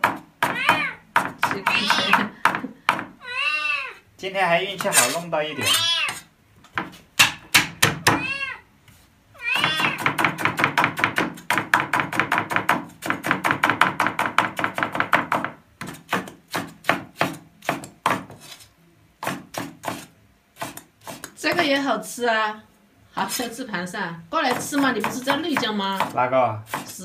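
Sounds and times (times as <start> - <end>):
cat meowing: 0.5 - 1.0, 1.6 - 2.3, 3.2 - 4.0, 5.5 - 6.3, 8.1 - 8.7, 9.4 - 10.0
cleaver chopping on wooden board: 6.8 - 8.2, 9.6 - 18.5, 19.2 - 21.7, 24.5 - 27.0.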